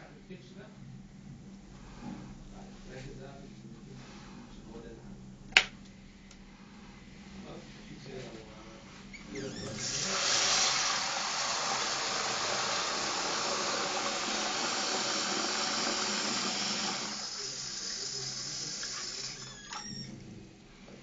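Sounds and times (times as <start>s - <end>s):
tap water running into cup: 9.6s - 20.0s.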